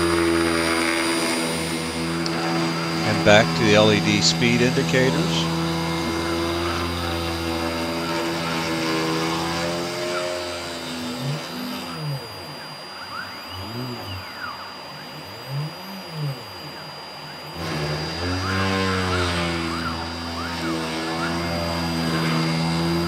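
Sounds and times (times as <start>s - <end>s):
axis motors sweeping in pitch: 0.0s - 23.0s
spindle motor humming: 0.0s - 23.0s
thin high whine: 0.0s - 23.0s.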